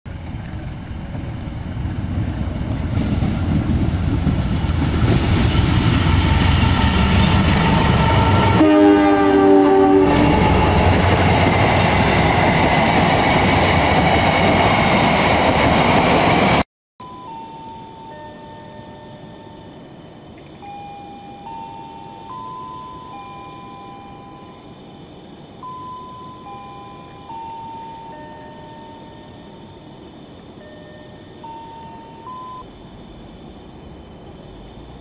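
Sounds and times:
locomotive engine rumbling: 0.1 - 16.6
train horn: 5.8 - 11.3.

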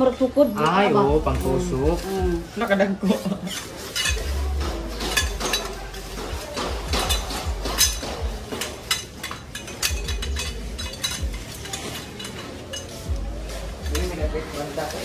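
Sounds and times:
tent poles clinking: 3.0 - 15.0.

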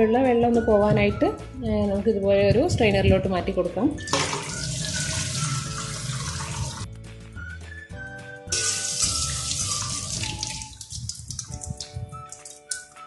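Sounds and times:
background music: 0.0 - 13.0
tap water running into colander: 4.0 - 6.9, 8.5 - 12.8.

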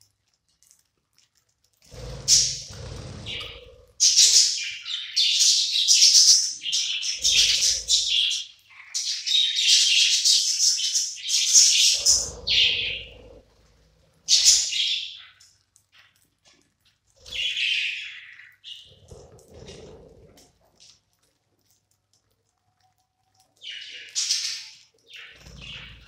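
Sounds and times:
budgerigars chirping and chattering: 1.9 - 13.4, 14.3 - 15.4, 17.2 - 19.8, 23.6 - 26.0.

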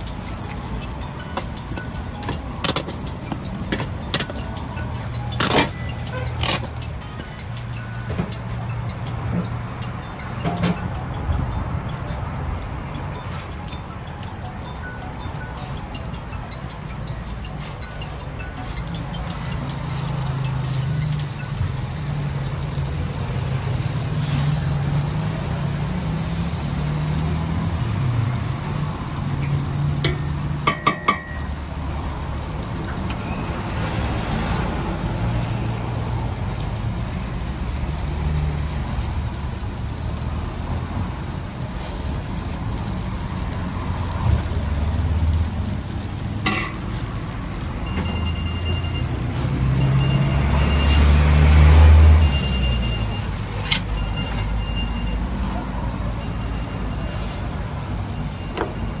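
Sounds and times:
wraps sizzling on griddle: 0.0 - 14.4, 15.3 - 59.0
low rumble of road traffic: 0.0 - 59.0
metallic clatter: 46.3 - 47.2
short electronic beeps: 47.9 - 51.2.

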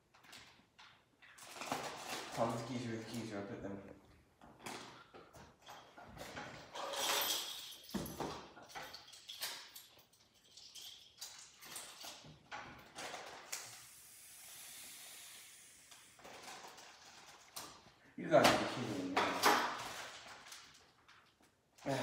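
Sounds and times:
cardboard and plastic packaging rustling: 1.3 - 3.3, 18.8 - 21.3
steady hiss: 13.5 - 16.2.

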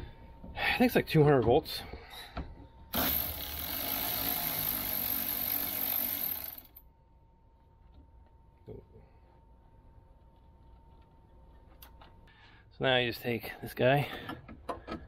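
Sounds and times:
cordless power driver running: 2.9 - 6.8.

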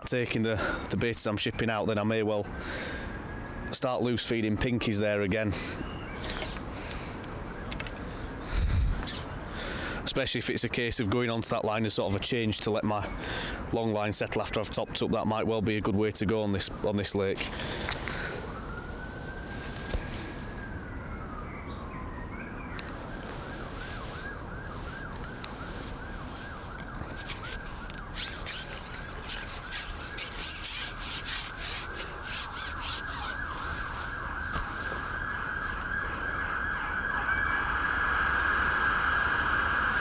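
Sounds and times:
siren wailing and yelping: 1.9 - 3.8, 5.4 - 10.0, 16.5 - 40.0
rubbing scraping noise: 6.2 - 6.6, 25.6 - 35.2.

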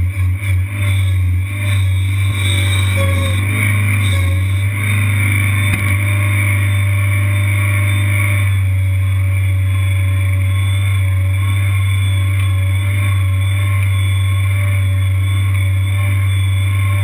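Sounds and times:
skid steer engine running: 0.0 - 17.0.

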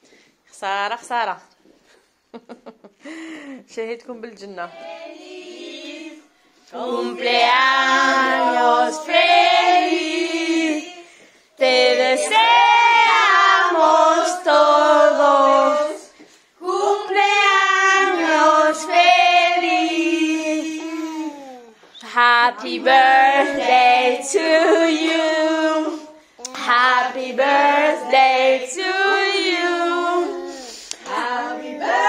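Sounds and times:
high child-like voice singing: 17.0 - 32.0.

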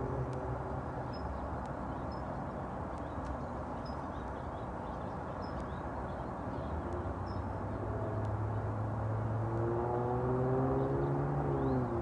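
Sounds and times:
engine drone: 0.0 - 1.1
bird chirps: 1.0 - 7.5.

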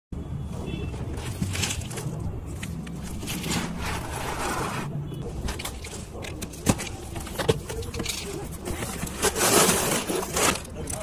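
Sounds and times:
cardboard box rubbed and scraped: 3.2 - 5.0, 8.6 - 10.9.

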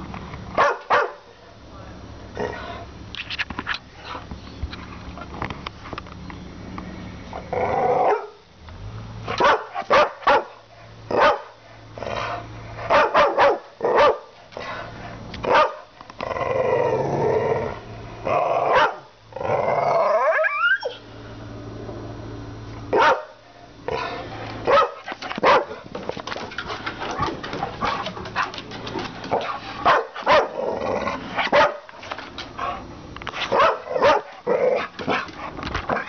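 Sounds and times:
dog barking: 0.6 - 1.2, 8.1 - 8.4, 9.3 - 11.6, 12.9 - 14.3, 15.5 - 15.9, 18.7 - 19.1, 22.9 - 23.4, 24.6 - 25.8, 29.4 - 30.6, 31.4 - 31.9, 33.5 - 35.2
dog growling: 7.4 - 8.1, 16.2 - 20.4, 29.2 - 31.5, 33.8 - 36.0.

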